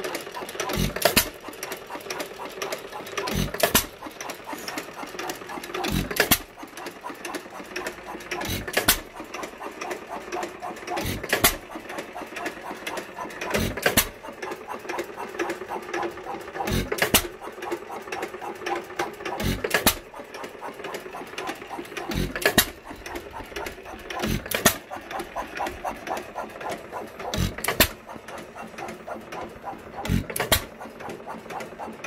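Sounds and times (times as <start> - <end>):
fast mechanical ticking: 0.0 - 32.0.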